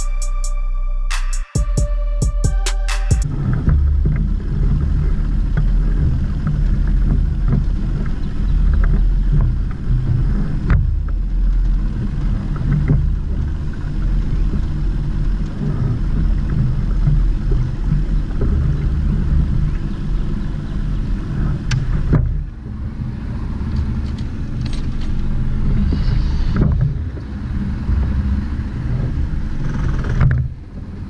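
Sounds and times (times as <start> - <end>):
outboard motor running: 3.3 - 25.7.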